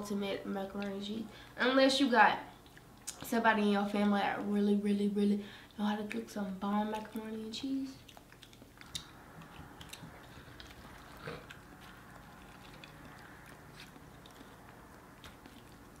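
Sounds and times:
chewing and eating: 2.5s - 3.3s, 5.6s - 16.0s.

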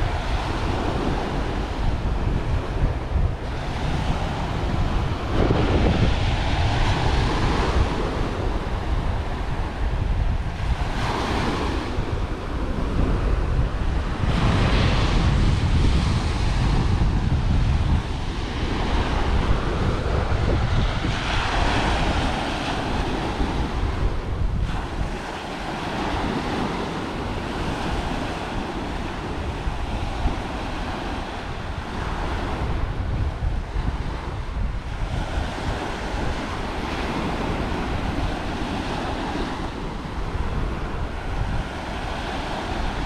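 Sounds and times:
waves breaking on shore: 0.0s - 43.0s
wind buffeting microphone: 0.0s - 43.0s.

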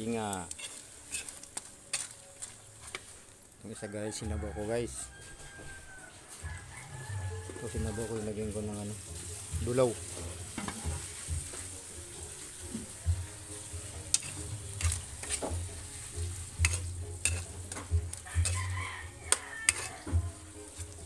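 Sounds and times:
metal ladle scraping a pan: 0.0s - 3.2s, 7.5s - 21.0s
meat sizzling in a wok: 0.0s - 21.0s.

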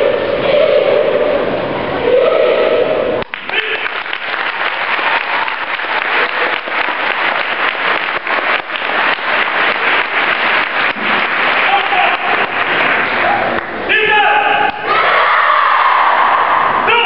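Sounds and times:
loud held chant-like sound: 0.0s - 17.0s
crowd applauding: 3.2s - 13.9s.

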